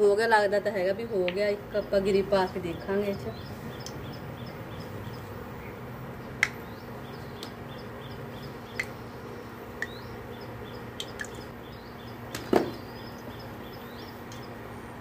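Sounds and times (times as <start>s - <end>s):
oil popping: 11.0s - 11.5s.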